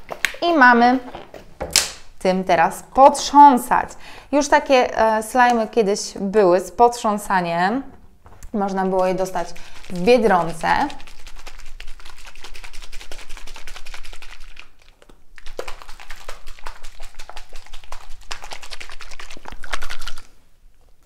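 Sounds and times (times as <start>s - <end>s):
water sloshing in shaken jar: 8.8s - 20.4s.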